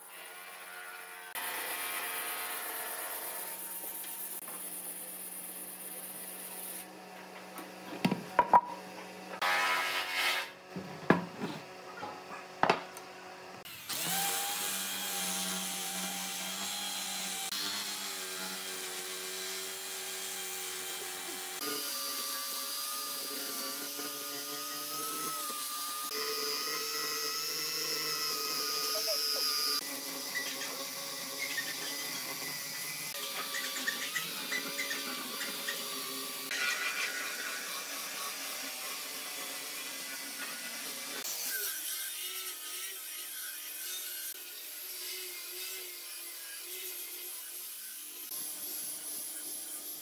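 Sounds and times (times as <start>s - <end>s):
drill sanding disc on log: 13.6s - 50.0s.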